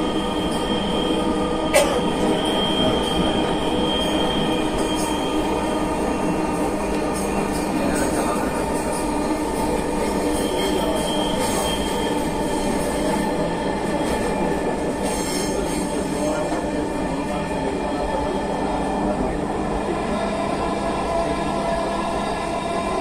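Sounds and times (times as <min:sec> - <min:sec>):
train wheels on track: 0:00.0 - 0:23.0.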